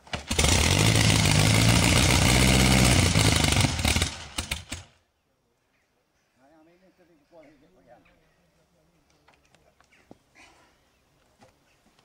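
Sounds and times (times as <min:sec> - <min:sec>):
motorcycle engine running and stuttering: 0:00.2 - 0:04.9.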